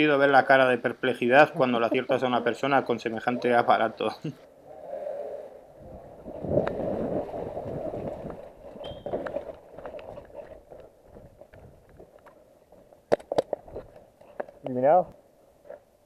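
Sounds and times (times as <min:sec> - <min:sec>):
wind and movement rumble: 0:04.7 - 0:14.1.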